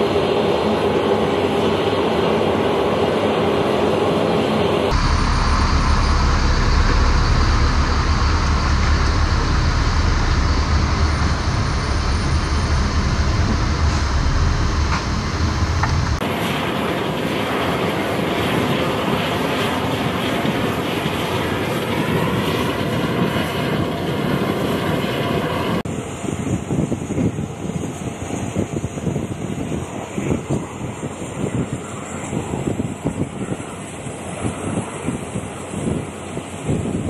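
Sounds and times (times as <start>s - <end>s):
deep rumble of aircraft engines: 0.0s - 37.0s
hissing jet engine whine: 0.0s - 37.0s
truck rolling aboard: 4.9s - 16.2s.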